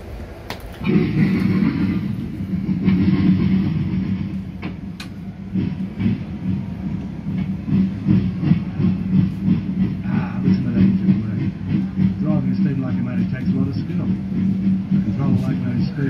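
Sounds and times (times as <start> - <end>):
steam train rumbling: 0.0 - 16.0.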